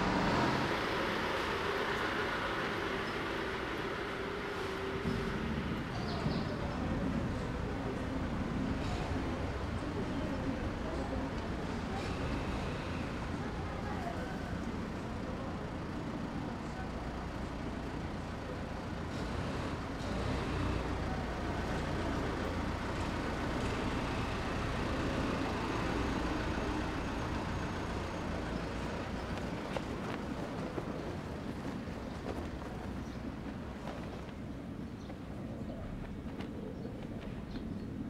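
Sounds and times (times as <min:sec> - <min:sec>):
low street rumble: 0:00.0 - 0:38.0
small truck engine: 0:00.0 - 0:38.0.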